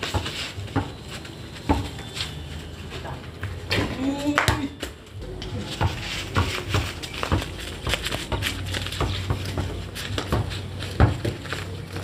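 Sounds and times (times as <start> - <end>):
basketball dribbling thuds: 0.0 - 2.0, 5.7 - 11.5
feet scuffing: 5.7 - 12.0.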